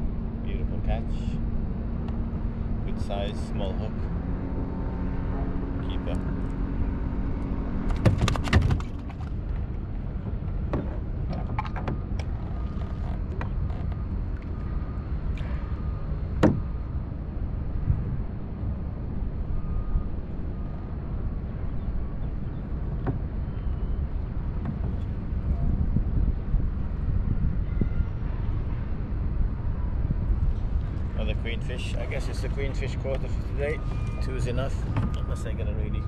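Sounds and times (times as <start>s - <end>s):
wind on microphone: 0.0s - 36.0s
fishing gear clicking and knocking: 7.8s - 9.8s, 10.6s - 14.5s
water moving around kayak: 7.9s - 16.8s, 31.8s - 35.6s.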